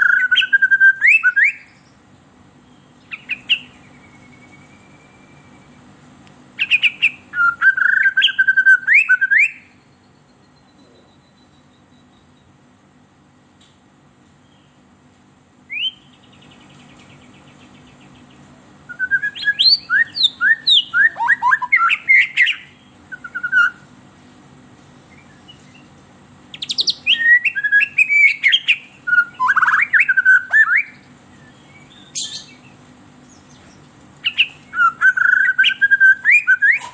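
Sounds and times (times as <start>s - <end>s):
bird singing whistled phrases: 0.0s - 1.9s, 2.7s - 5.8s, 6.6s - 9.8s, 15.7s - 17.2s, 18.9s - 23.9s, 26.5s - 33.6s, 34.2s - 36.9s.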